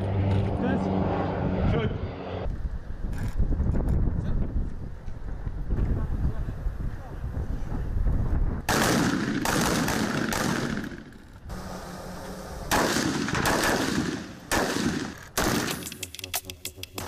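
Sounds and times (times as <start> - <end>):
rifle gunfire with echo: 8.7 - 11.2, 12.7 - 15.9.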